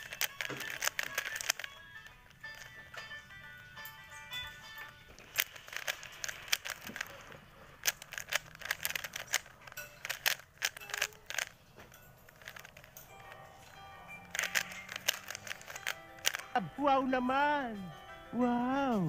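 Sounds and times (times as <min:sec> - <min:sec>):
plastic puzzle cube clicking: 0:00.0 - 0:03.1, 0:04.8 - 0:11.6, 0:12.2 - 0:13.4, 0:14.2 - 0:16.6.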